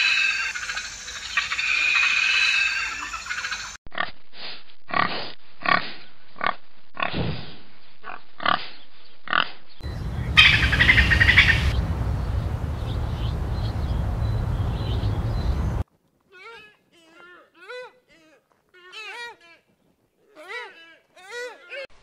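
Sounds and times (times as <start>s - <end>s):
low rumble: 9.8s - 15.8s.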